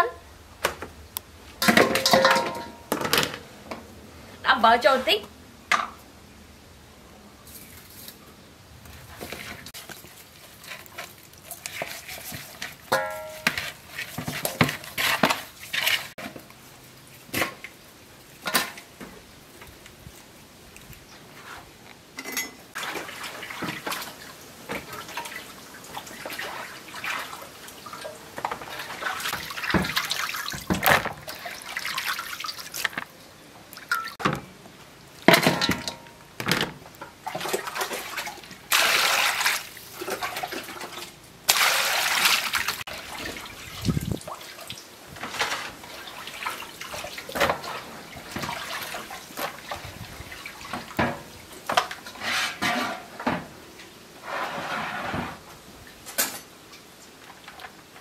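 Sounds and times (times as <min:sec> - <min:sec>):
hands splashing water in basin: 0:37.2 - 0:44.8.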